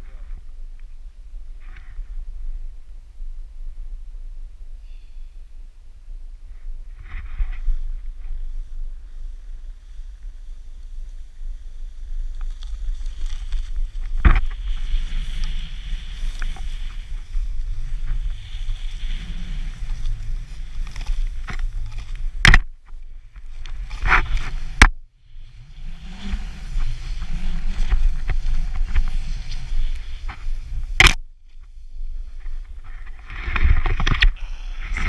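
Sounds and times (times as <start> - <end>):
wind rumbling on microphone: 0.0 - 35.0
snowboard hissing in snow: 14.5 - 21.4, 23.8 - 31.0.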